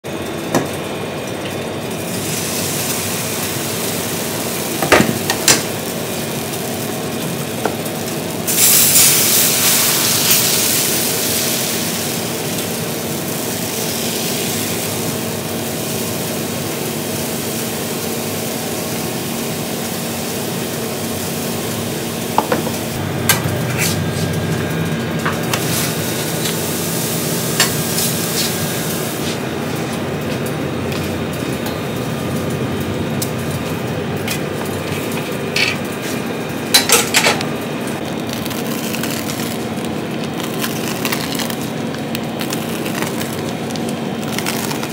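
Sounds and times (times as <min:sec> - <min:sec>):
batter sizzling on a griddle: 0:01.5 - 0:31.6, 0:37.8 - 0:44.9
steady hum: 0:18.6 - 0:44.9.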